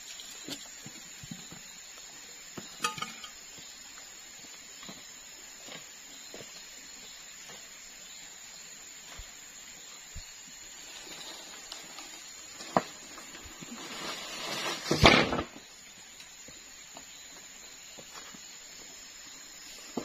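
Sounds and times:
insect drone: 0.0s - 20.0s
footsteps on dry leaves: 12.4s - 15.0s.

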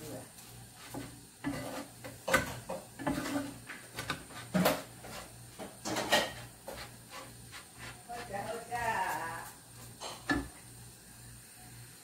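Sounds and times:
food knocking in frying pan: 0.9s - 5.0s.

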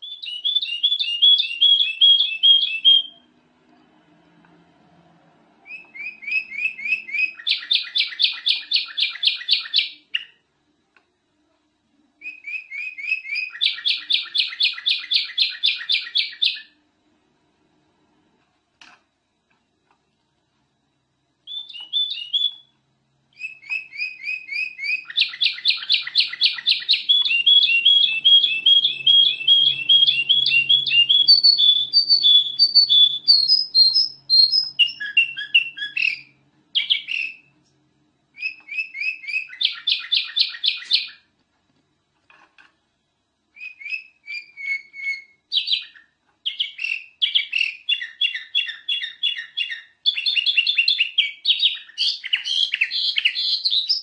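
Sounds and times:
bird singing chattering song: 0.0s - 3.3s, 5.6s - 10.4s, 12.2s - 16.8s, 21.5s - 22.7s, 23.3s - 37.5s, 38.4s - 41.3s, 43.6s - 54.0s.

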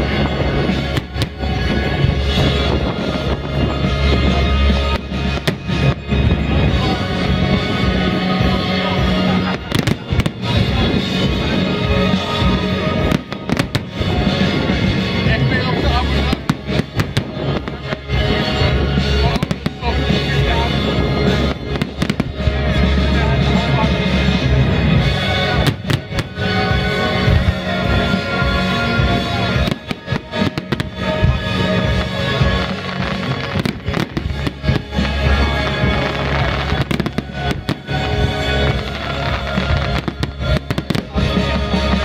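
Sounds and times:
fireworks bursting: 0.0s - 42.0s
loud music with heavy bass: 0.0s - 42.0s
firework shells bursting: 29.6s - 42.0s.

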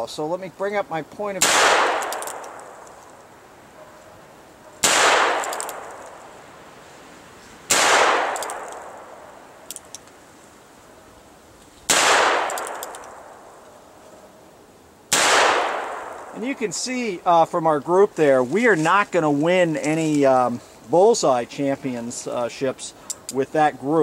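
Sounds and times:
light revolver clicks: 1.9s - 3.0s, 5.3s - 6.2s, 8.3s - 9.0s, 9.6s - 10.2s, 12.4s - 13.3s
revolver shots echoing: 4.8s - 6.0s.

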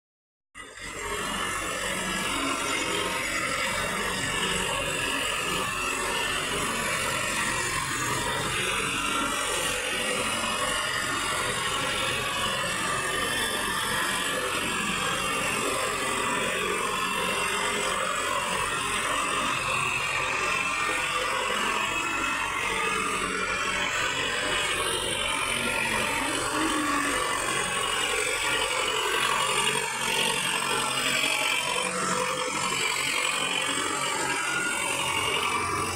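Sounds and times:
tractor diesel engine running: 18.1s - 35.9s.

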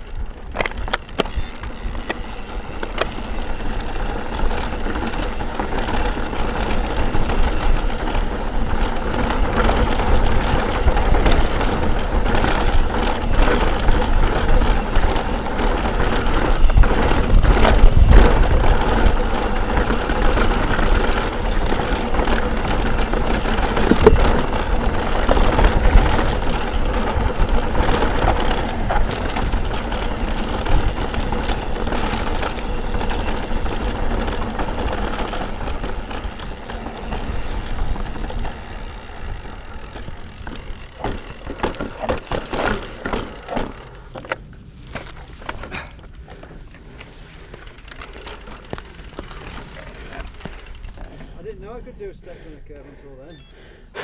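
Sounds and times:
bike rattling and clattering: 0.0s - 52.4s
tyres rumbling over stones: 2.8s - 51.4s.

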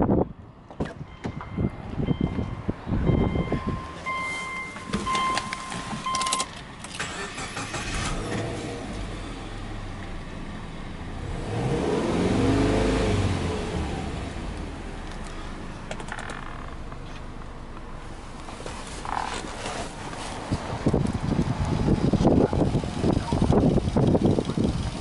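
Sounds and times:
dashboard warning chime beeping: 1.1s - 6.6s
car engine starting and revving: 5.8s - 17.2s, 18.2s - 25.0s.

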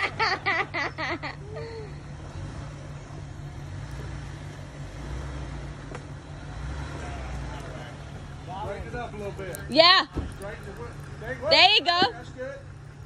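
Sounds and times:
car engine running at low revs: 0.0s - 13.0s.

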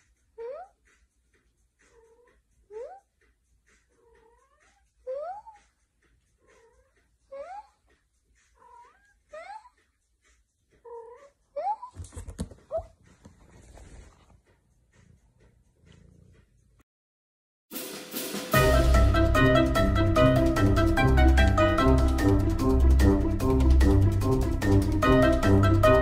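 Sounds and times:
cat meowing: 4.0s - 5.7s, 6.4s - 7.8s, 8.6s - 9.8s, 10.8s - 12.0s
rustling against microphone: 11.8s - 16.3s.

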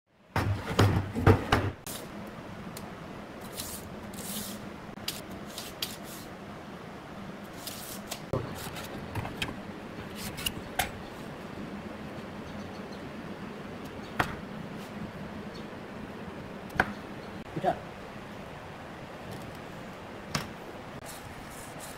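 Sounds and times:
wooden boards knocking on workbench: 0.4s - 1.8s
faint steady hum: 1.8s - 21.9s.

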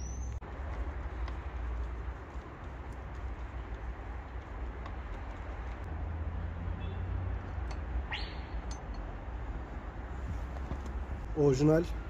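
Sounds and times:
bird call whistle: 8.1s - 8.6s.

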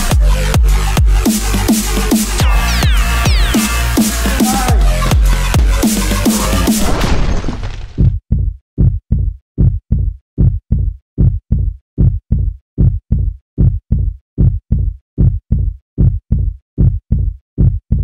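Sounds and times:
heartbeat thumps: 2.4s - 6.9s, 8.3s - 18.0s.

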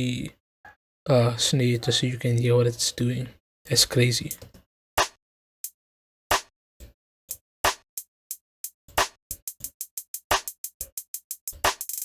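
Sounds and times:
programmed hi-hats: 7.3s - 12.0s.

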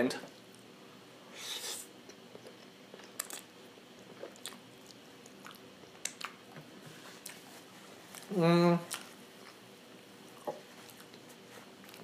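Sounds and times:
person chewing food: 1.4s - 6.6s, 7.2s - 8.3s, 10.3s - 12.0s.

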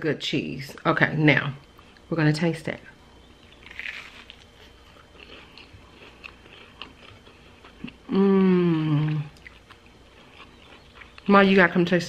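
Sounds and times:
soft chewing: 3.4s - 11.9s
biting into toasted sandwich: 3.6s - 8.0s
person humming mmm: 7.8s - 9.4s.

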